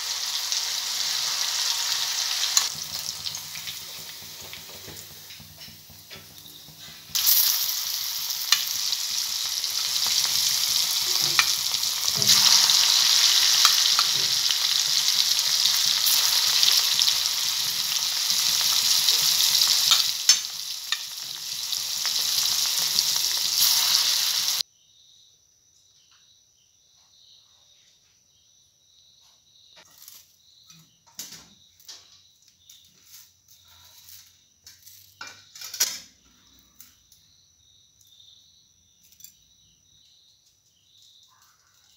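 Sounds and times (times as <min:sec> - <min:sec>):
chicken deep-frying in oil: 0:00.0 - 0:24.6.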